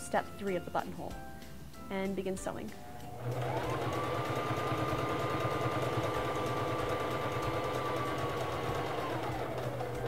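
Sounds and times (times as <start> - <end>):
sewing machine motor whine: 3.2 - 10.0.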